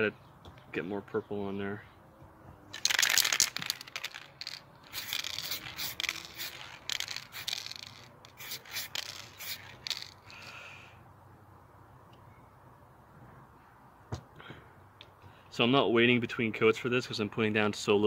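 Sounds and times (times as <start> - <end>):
spray paint can hissing: 2.8 - 10.4.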